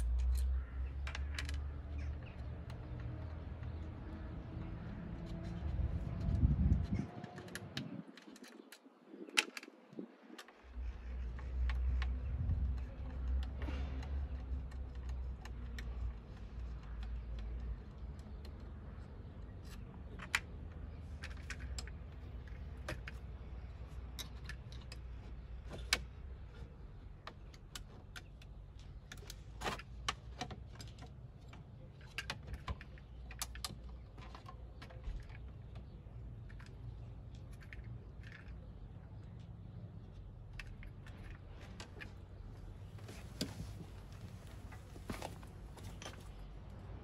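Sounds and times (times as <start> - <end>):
small plastic clicks and rattles: 0.0 - 42.6.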